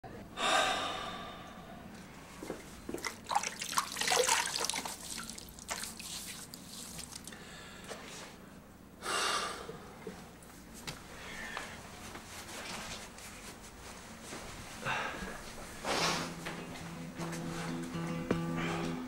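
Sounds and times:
water splashing in a sink: 2.9s - 7.3s.

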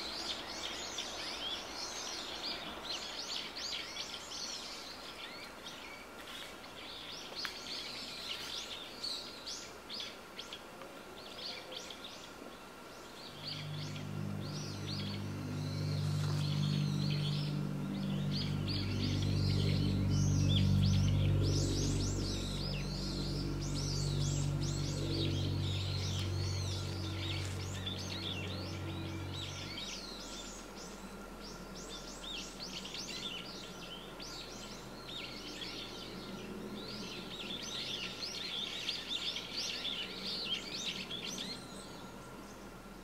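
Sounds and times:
low steady hum: 0.0s - 43.0s
small birds chirping: 0.0s - 43.0s.

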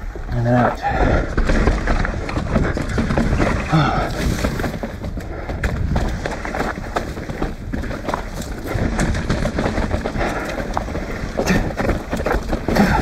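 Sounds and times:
bike rattling over stones: 0.0s - 13.0s
wind and tyre noise: 0.0s - 13.0s.

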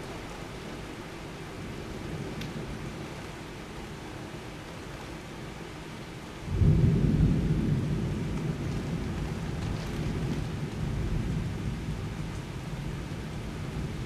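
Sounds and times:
rain hiss: 0.0s - 14.0s
thunder rumbling: 6.4s - 14.0s.

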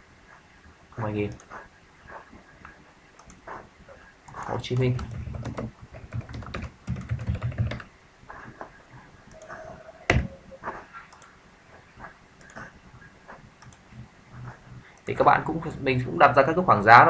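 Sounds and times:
computer keyboard typing: 3.2s - 3.6s, 4.3s - 7.9s, 13.6s - 15.2s.

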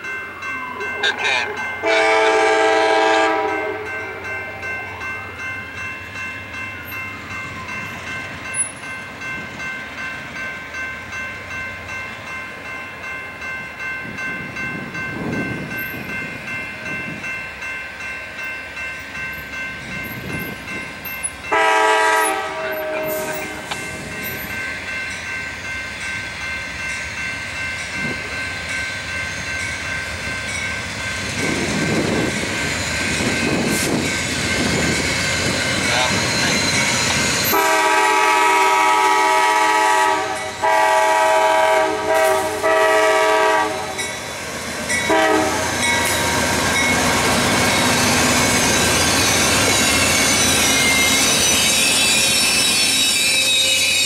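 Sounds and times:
crossing warning bell ringing: 0.0s - 54.0s
locomotive horn blast: 1.1s - 3.9s, 21.5s - 23.8s, 37.5s - 44.0s, 45.1s - 46.1s.

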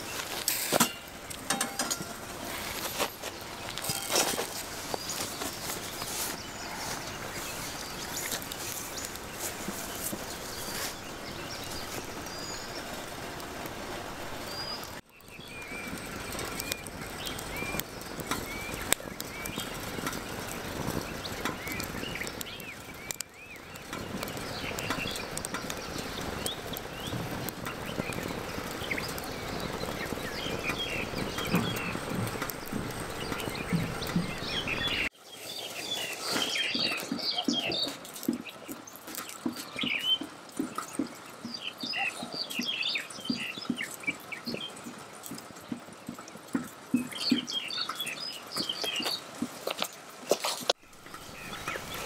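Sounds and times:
hiss of flame: 0.0s - 1.5s, 15.9s - 36.8s
wood fire crackling and popping: 0.0s - 35.2s, 36.0s - 52.0s
birds chirping: 0.0s - 52.0s.

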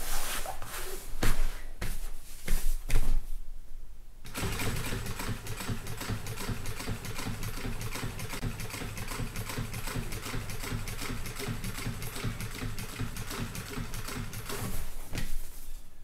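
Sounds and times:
sewing machine stitching: 4.3s - 14.9s.

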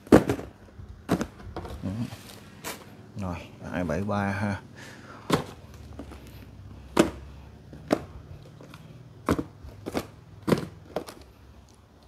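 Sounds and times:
cardboard boxes knocking: 0.0s - 1.8s, 5.2s - 6.2s, 6.9s - 11.2s.

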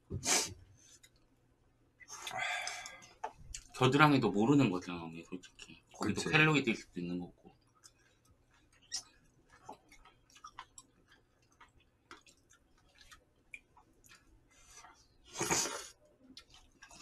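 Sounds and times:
chewing noises: 7.5s - 17.0s
loud slurp of noodles: 15.3s - 15.9s.

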